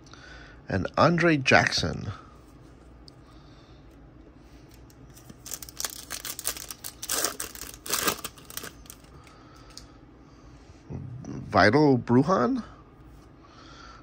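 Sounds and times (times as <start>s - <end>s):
foil pack tearing and crinkling: 5.2s - 9.1s.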